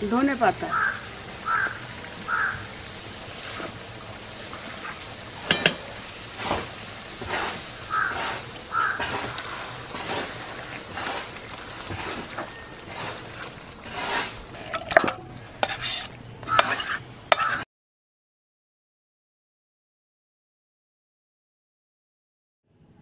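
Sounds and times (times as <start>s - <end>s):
crows cawing: 0.7s - 2.7s, 7.9s - 9.7s
spatula scraping metal pot: 4.4s - 17.6s
spatula clinking against pot: 5.4s - 5.9s, 14.7s - 17.6s.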